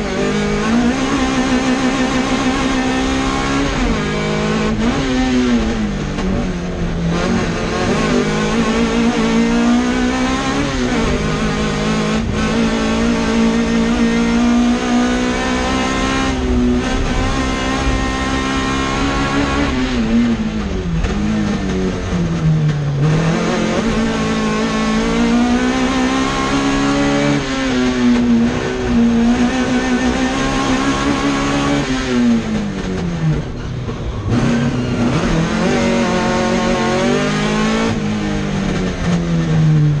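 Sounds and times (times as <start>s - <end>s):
car engine revving from inside cabin: 7.1s - 20.4s, 23.0s - 32.5s, 34.3s - 39.6s.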